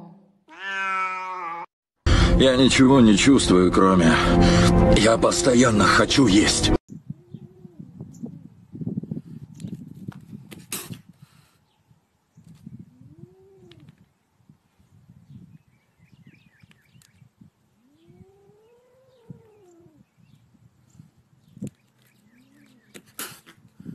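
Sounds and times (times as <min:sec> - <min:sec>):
kitten yowling: 0:00.5 - 0:01.7, 0:17.8 - 0:20.0.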